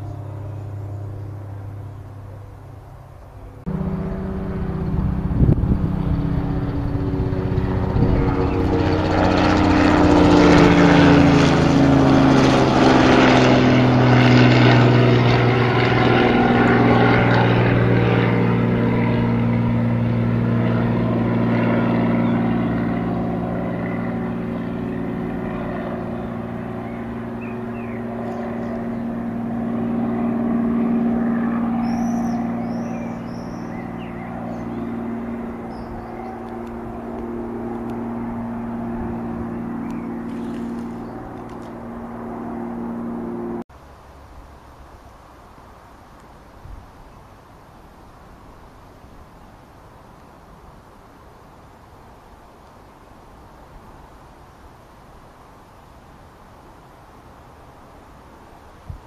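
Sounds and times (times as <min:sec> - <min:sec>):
engine passing by: 0:00.0 - 0:43.7.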